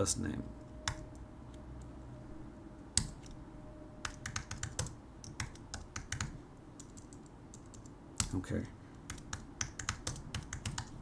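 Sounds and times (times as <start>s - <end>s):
computer keyboard typing: 0.8s - 1.2s, 4.0s - 11.0s.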